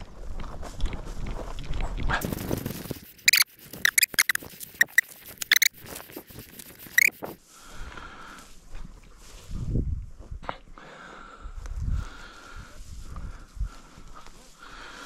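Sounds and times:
dog rustling through dry grass: 2.2 - 7.3
short sharp high squeaks: 3.1 - 5.8, 6.8 - 7.2.

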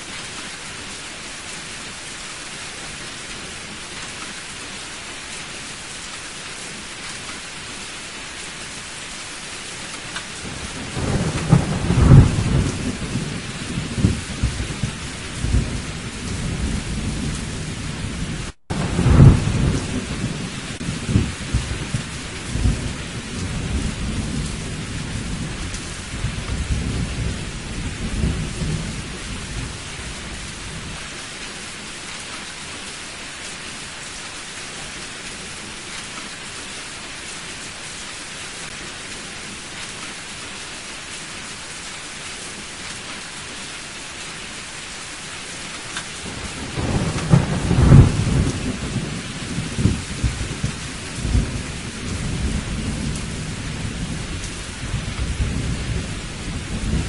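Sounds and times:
heavy rain: 0.0 - 57.0
rolling thunder: 10.4 - 31.0, 46.2 - 57.0.

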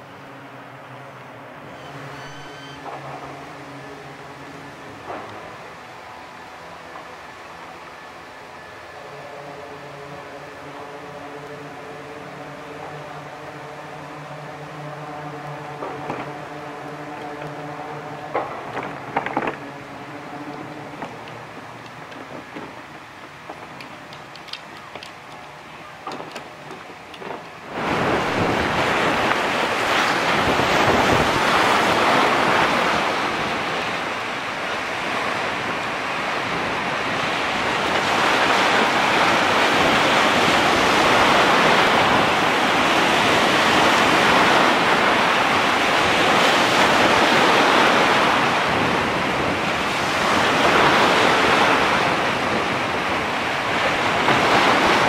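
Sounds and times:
waves breaking on sand beach: 2.9 - 55.0
wind buffeting microphone: 10.1 - 55.0
faint clicks: 20.5 - 27.6.

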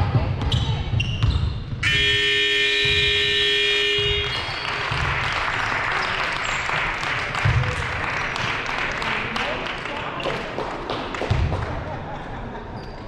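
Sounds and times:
scoreboard buzzer blast: 1.8 - 4.4
crowd applause and cheering: 4.0 - 11.7.

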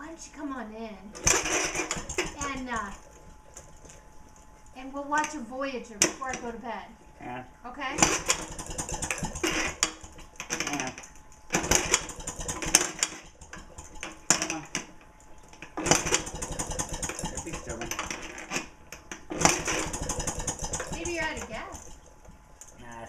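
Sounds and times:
engine being kick-started: 1.2 - 3.0, 8.0 - 14.7, 15.7 - 22.0
rapid engine clattering: 1.2 - 3.9, 8.0 - 14.6, 15.7 - 18.3, 19.2 - 22.7.

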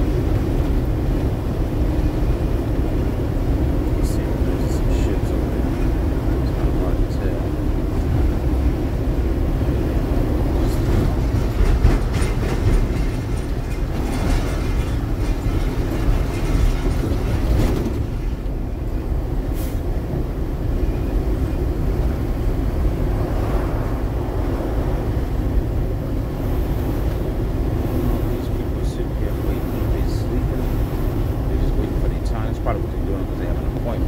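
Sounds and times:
truck engine and tyres rumbling: 0.0 - 34.0
cab jostling: 10.2 - 19.0.

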